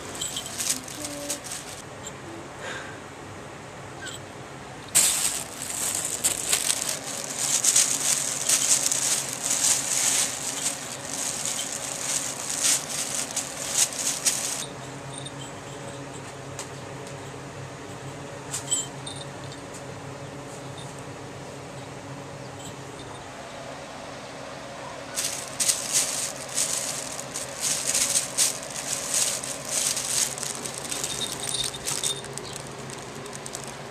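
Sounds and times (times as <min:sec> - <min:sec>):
plastic sheeting crinkling: 0:00.0 - 0:01.8, 0:04.9 - 0:14.7, 0:25.1 - 0:33.9
small collar bell jingling: 0:00.0 - 0:01.8, 0:05.0 - 0:16.3, 0:17.9 - 0:19.7, 0:25.2 - 0:33.9.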